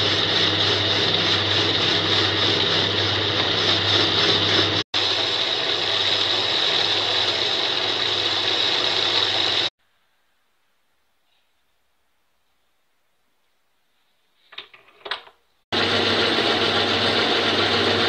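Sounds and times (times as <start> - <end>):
metal lathe motor humming and whining: 0.0 - 9.7, 15.8 - 18.0.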